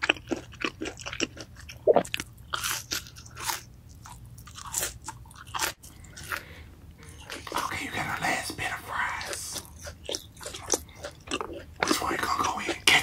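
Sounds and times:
crispy food crunching: 0:00.0 - 0:07.7, 0:09.1 - 0:13.0.

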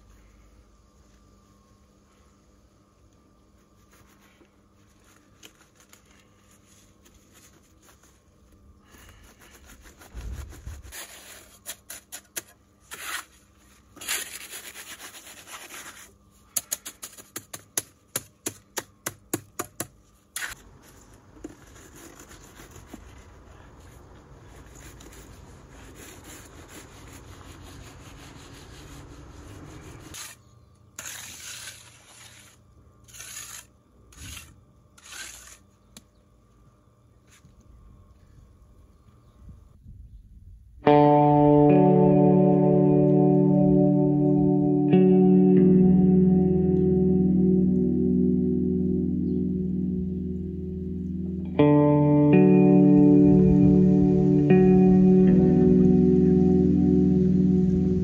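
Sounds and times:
trowel rubbing concrete surface: 0:24.5 - 0:36.1
trowel scraping wet concrete: 0:29.6 - 0:36.1
trowel chopping concrete: 0:31.0 - 0:36.0.

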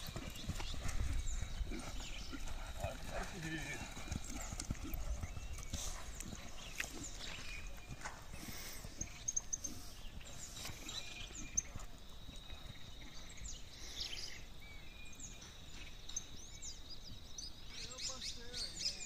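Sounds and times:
horse hoofbeats galloping: 0:00.0 - 0:13.6.

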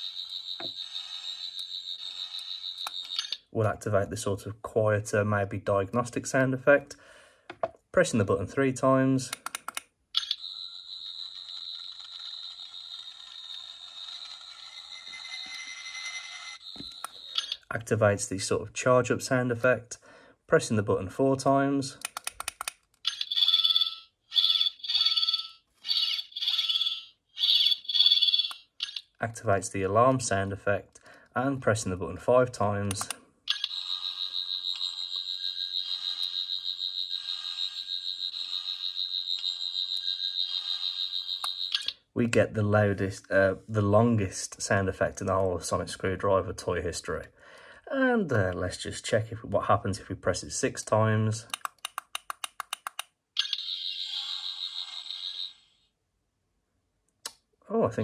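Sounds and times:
toy high electronic whine: 0:00.0 - 0:03.5, 0:10.2 - 0:17.7, 0:25.8 - 0:29.1, 0:33.5 - 0:42.0, 0:53.4 - 0:56.0.

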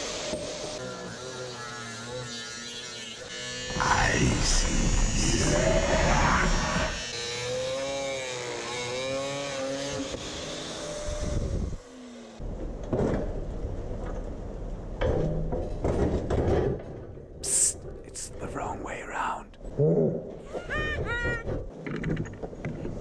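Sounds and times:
angle grinder running in steel pipe: 0:00.0 - 0:12.4.

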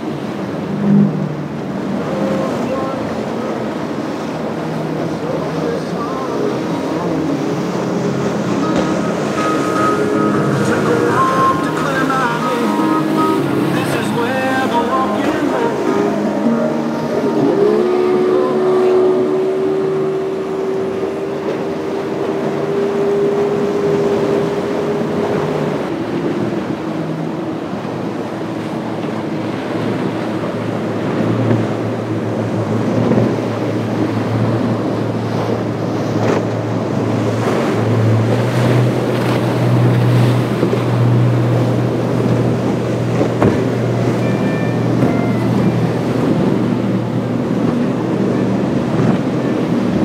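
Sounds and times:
boat engine drone: 0:00.0 - 0:50.0
low engine hum: 0:00.0 - 0:50.0
waves rushing: 0:00.0 - 0:50.0
wind: 0:00.0 - 0:50.0.

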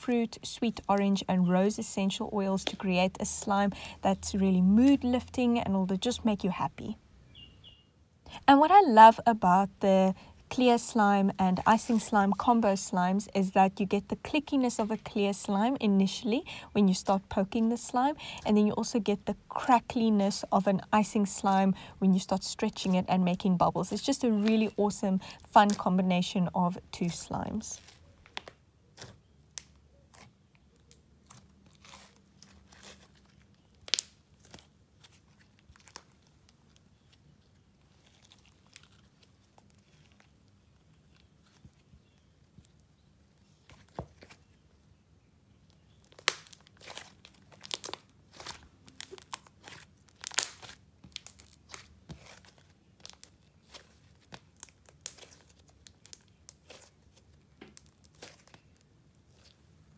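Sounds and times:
sticky slime clicks and crackles: 0:33.8 - 0:34.6, 0:46.1 - 0:56.9.

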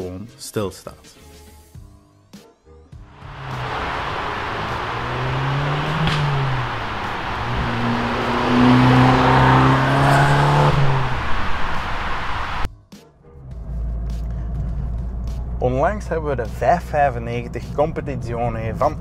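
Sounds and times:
car engine driving past: 0:03.2 - 0:12.7.

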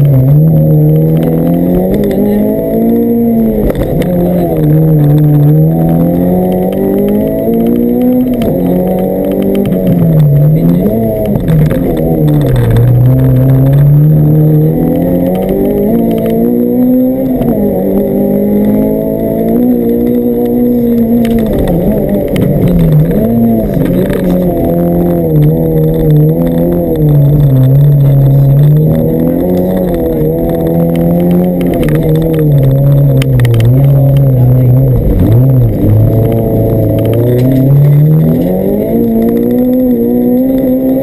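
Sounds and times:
rally car engine under load: 0:00.0 - 0:41.0.

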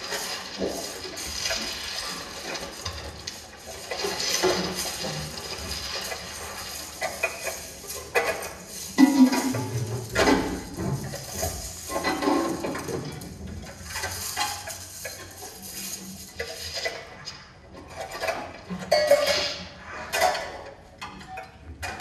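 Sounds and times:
metal pots and pans clattering: 0:00.0 - 0:22.0.

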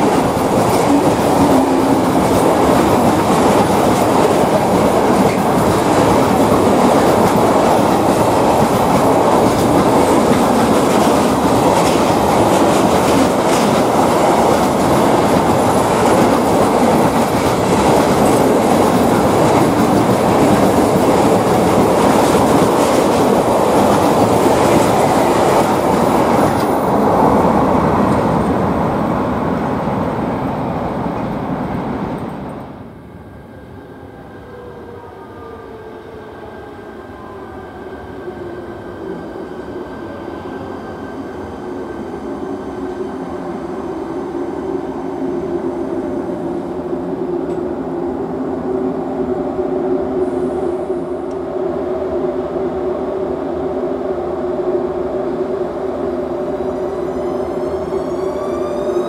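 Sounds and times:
train wheels rumbling and clattering: 0:00.0 - 0:32.8.

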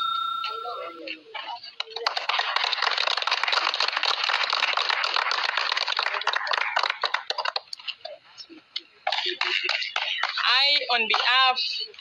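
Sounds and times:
people clapping: 0:01.7 - 0:08.0, 0:09.0 - 0:12.0.

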